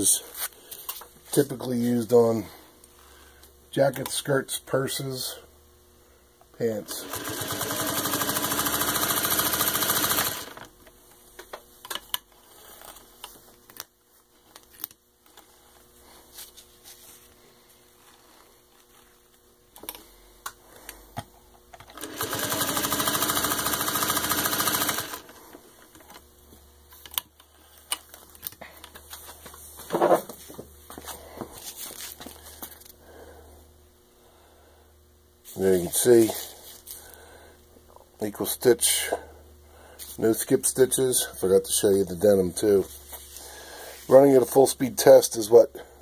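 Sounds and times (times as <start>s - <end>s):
sewing machine stitching: 6.8s - 10.7s, 21.9s - 25.4s.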